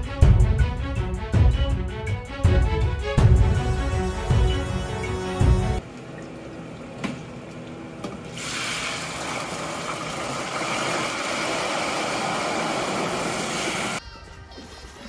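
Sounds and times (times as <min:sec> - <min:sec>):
hot oil sizzling: 0:08.3 - 0:14.0.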